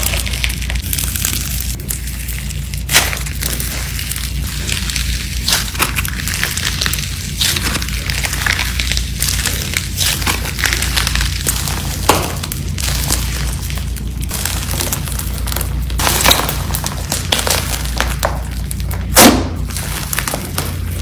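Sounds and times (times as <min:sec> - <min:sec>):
slime crackling and popping: 0:00.0 - 0:21.0
loud slime pop: 0:19.1 - 0:19.7.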